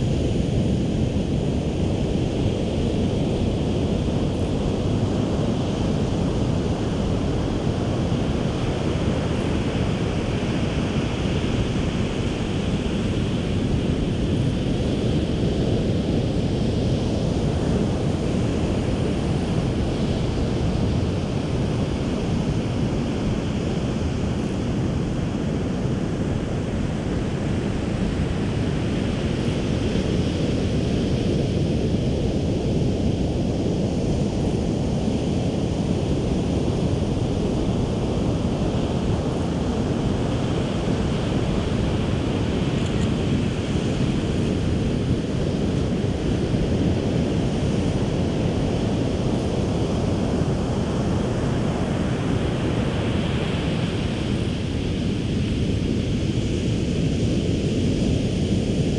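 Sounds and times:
wind buffeting microphone: 0.0 - 58.9
ocean waves breaking on beach: 34.9 - 57.1.

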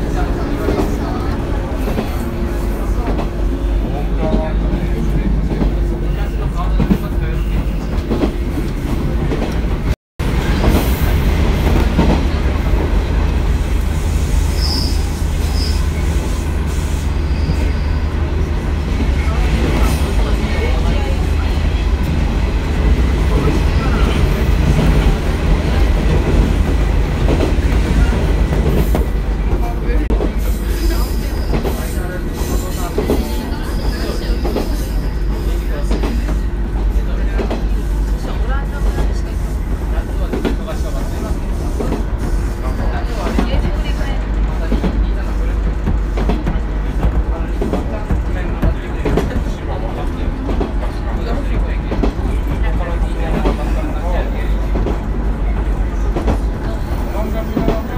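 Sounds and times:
train wheels rumbling on rails: 0.0 - 57.9
train wheels knocking: 41.8 - 57.9.

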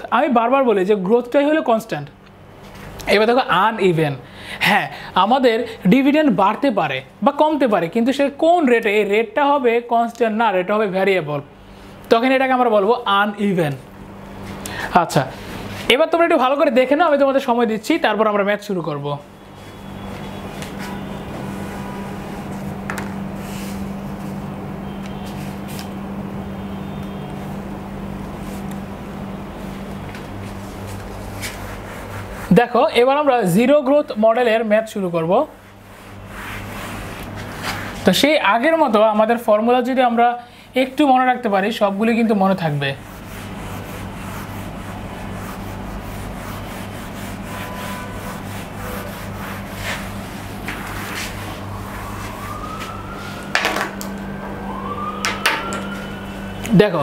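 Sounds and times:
low electrical hum: 0.0 - 57.0
steady low hum: 19.2 - 33.0
eraser rubbing whiteboard: 19.4 - 24.4, 29.8 - 32.9, 35.4 - 38.3, 43.0 - 52.5.

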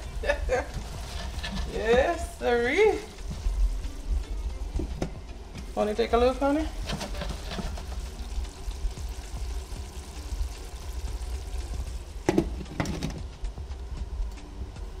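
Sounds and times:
curry simmering: 0.0 - 14.0
steady low hum: 0.0 - 15.0
glass lid knocking on pan: 12.2 - 13.2.

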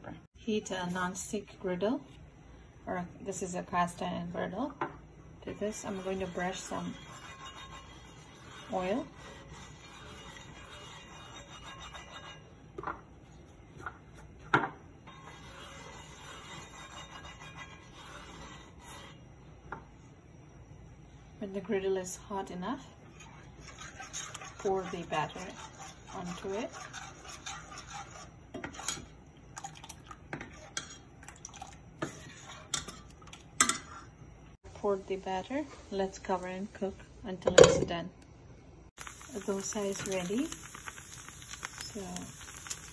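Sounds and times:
brush scrubbing cast iron griddle: 5.6 - 12.4, 15.1 - 19.1, 23.1 - 28.9
hot oil popping: 39.0 - 42.9.

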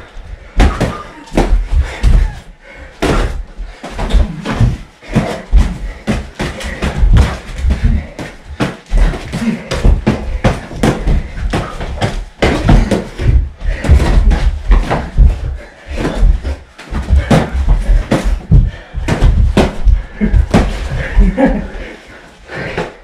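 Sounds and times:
feet thudding on floor: 0.6 - 21.8
boxing gloves smacking: 3.0 - 15.4.

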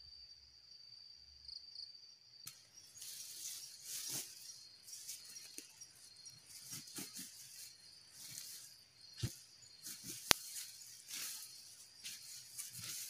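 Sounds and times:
insects chirring: 0.0 - 13.0
rustling handling noise: 2.9 - 13.0.

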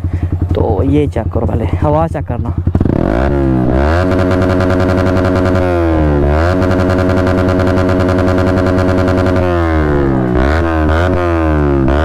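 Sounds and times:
motorcycle engine revving hard: 2.6 - 12.0.

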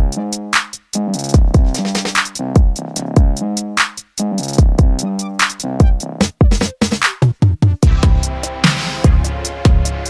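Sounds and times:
deep kick and bass hits: 1.3 - 1.8, 2.6 - 3.4, 4.6 - 5.0, 7.8 - 10.0
held synth notes: 4.9 - 6.8.

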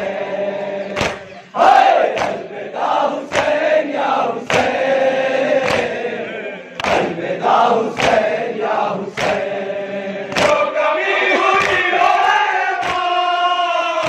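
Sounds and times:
men chanting in unison: 0.0 - 14.0
chest-beating slaps: 0.9 - 1.3, 2.0 - 2.5, 3.3 - 3.6, 4.4 - 4.8, 5.6 - 6.0, 6.8 - 7.2, 7.9 - 8.3, 9.1 - 9.5, 10.3 - 10.6, 11.4 - 13.1.

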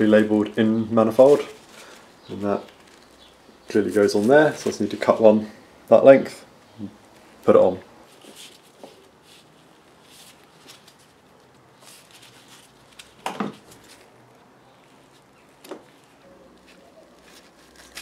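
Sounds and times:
hose handling rustling: 8.1 - 18.0.

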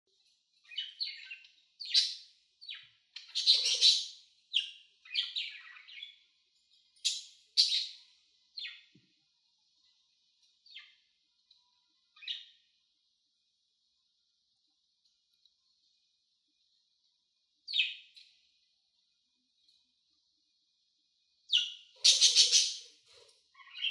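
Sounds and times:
budgerigars chirping: 0.7 - 6.2, 7.0 - 8.0, 21.5 - 23.0, 23.6 - 23.9.

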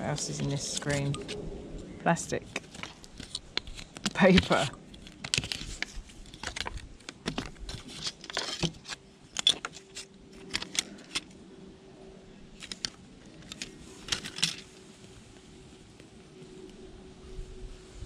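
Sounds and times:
plastic film crinkling: 2.4 - 11.3
small plastic parts clicking: 2.5 - 11.4, 12.6 - 14.6.

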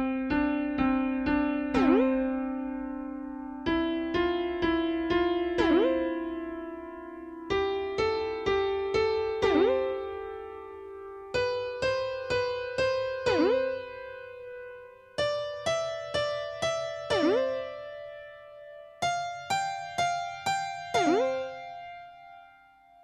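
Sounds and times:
electric piano cartoon jingle: 0.9 - 2.7, 7.5 - 14.6, 15.2 - 18.4, 19.1 - 21.8.

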